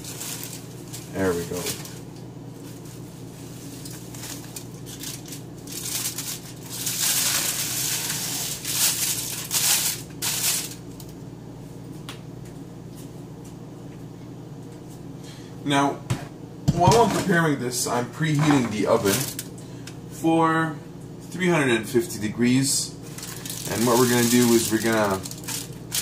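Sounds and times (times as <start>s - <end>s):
plastic wrap and foil crinkling: 0.0s - 11.2s, 18.4s - 19.5s, 23.0s - 26.0s.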